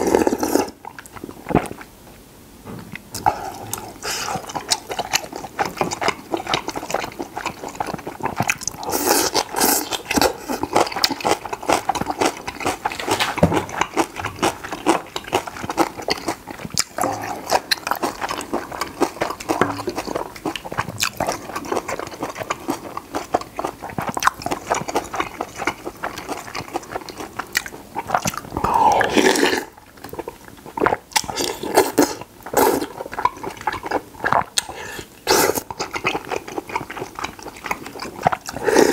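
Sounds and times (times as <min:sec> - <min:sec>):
wet chewing and mouth smacks: 0:02.9 - 0:38.9
man slurping noodles: 0:28.4 - 0:29.8, 0:38.5 - 0:38.9.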